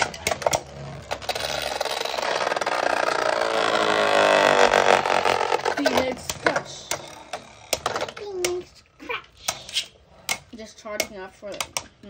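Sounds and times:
spinning tops whirring rattle: 0.0 - 8.2.

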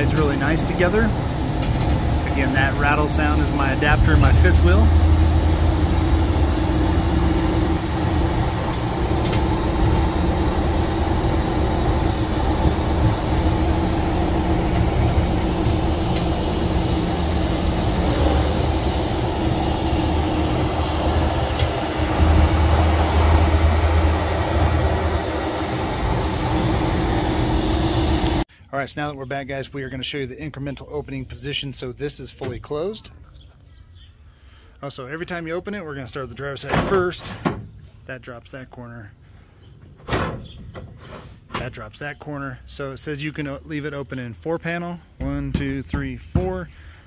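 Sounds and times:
tyre and drivetrain rumble: 0.0 - 28.4.

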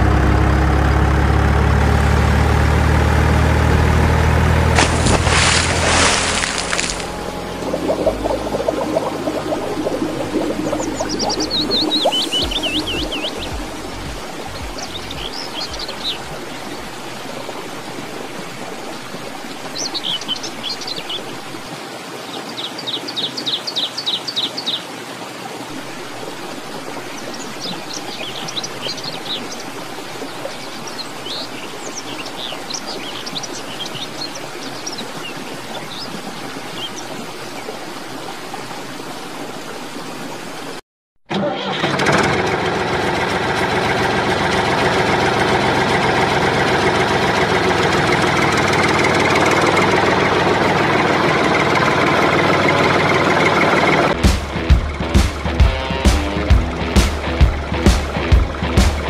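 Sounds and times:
flowing water: 0.0 - 59.0
small birds chirping: 10.3 - 17.0.

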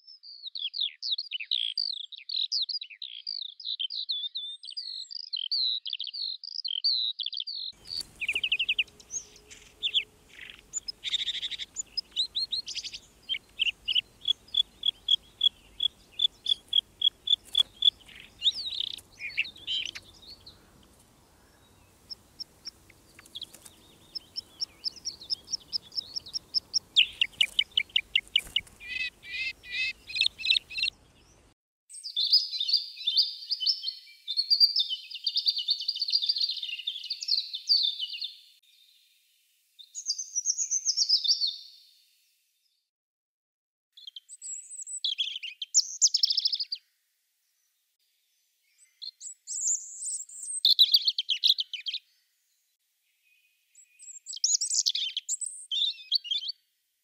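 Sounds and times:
bird singing trills: 0.2 - 38.4, 53.8 - 56.6
songbird fast warble: 7.8 - 31.4.

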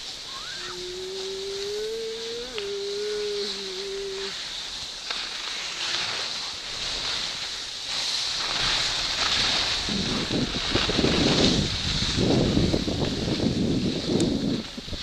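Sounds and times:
steady hum: 0.0 - 4.4
wind on microphone: 0.0 - 5.0, 8.3 - 15.0
skis scraping over snow: 0.0 - 15.0.

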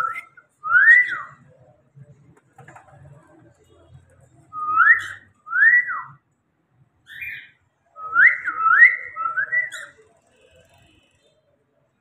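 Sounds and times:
cockatiel whistling: 0.0 - 1.4, 4.6 - 6.2, 7.1 - 10.0.

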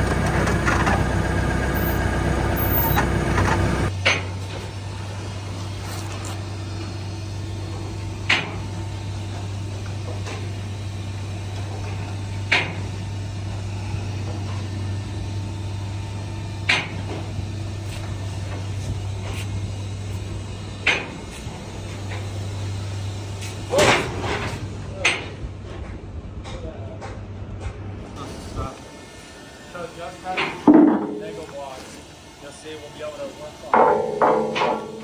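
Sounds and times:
conveyor drive humming: 0.0 - 35.0
sharp metallic clank: 33.8 - 35.0.

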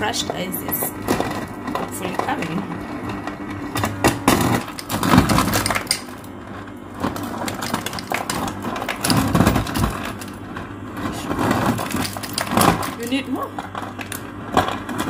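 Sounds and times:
ice clattering into glass: 11.7 - 13.1.

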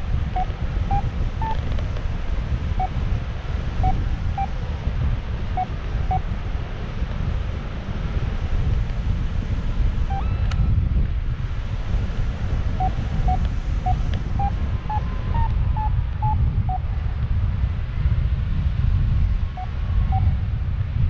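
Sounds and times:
wind rushing over microphone: 0.0 - 21.0
variometer beeping: 0.3 - 1.6, 2.8 - 3.0, 3.8 - 4.6, 5.6 - 6.2, 12.8 - 16.8, 19.6 - 20.3.

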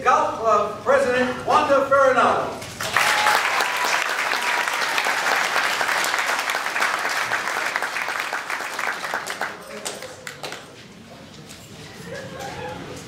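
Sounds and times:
audience applauding: 2.8 - 10.7.

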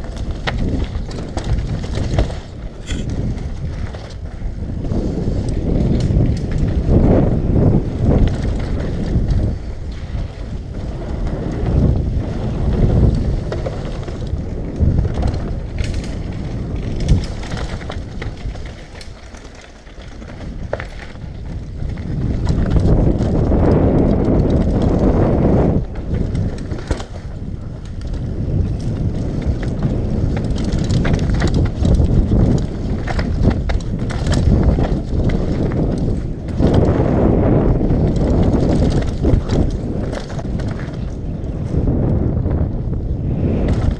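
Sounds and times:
tyres rolling over dirt and rocks: 0.0 - 42.6
bike rattling clicks: 0.0 - 43.9
wind buffeting microphone: 0.0 - 43.9.

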